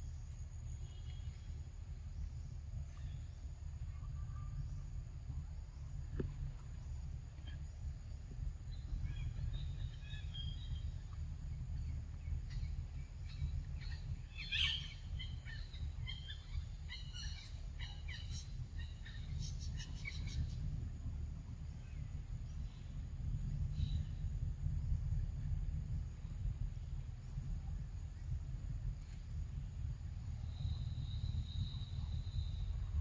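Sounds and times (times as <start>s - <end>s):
constant thin high tone: 0.0s - 33.0s
steady low rumble: 0.0s - 33.0s
birds chirping: 7.0s - 20.8s.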